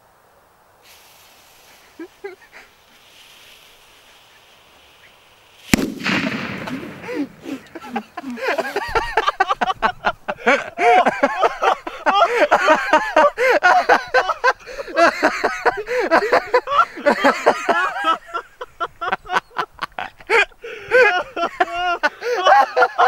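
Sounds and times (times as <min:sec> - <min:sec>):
people laughing: 0:02.0 - 0:02.7, 0:06.0 - 0:23.0.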